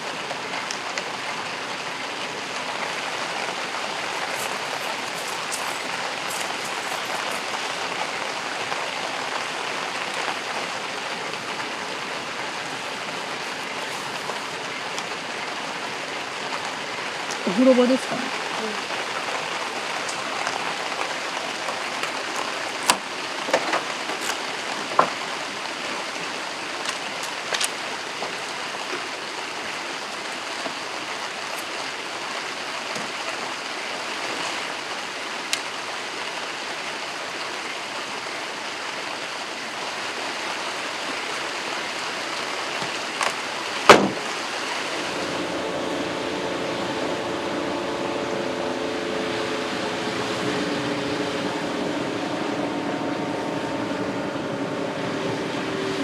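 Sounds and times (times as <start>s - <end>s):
steady rain: 0.0s - 56.0s
sharp knock: 43.9s - 44.2s
mechanical hum: 44.8s - 56.0s.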